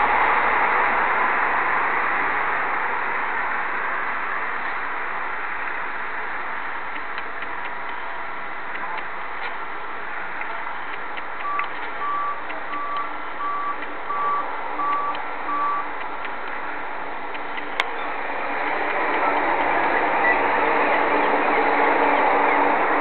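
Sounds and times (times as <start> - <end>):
steady noise: 0.0 - 23.0
reversing alarm beeping: 11.4 - 15.9.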